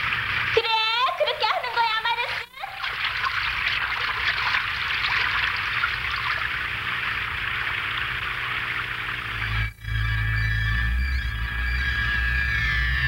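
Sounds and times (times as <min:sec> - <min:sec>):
cartoon water gushing: 0:00.0 - 0:09.5.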